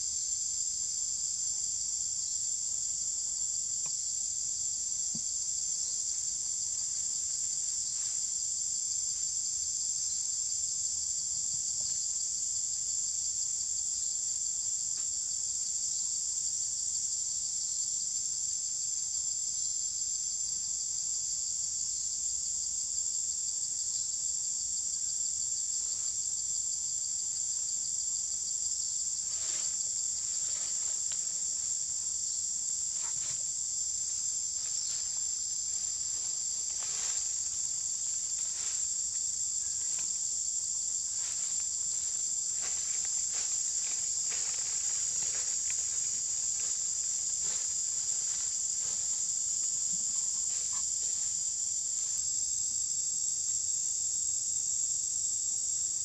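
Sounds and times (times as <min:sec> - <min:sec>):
insects chorus: 0:00.0 - 0:56.0
footsteps through dry leaves: 0:35.9 - 0:39.1, 0:41.0 - 0:49.3.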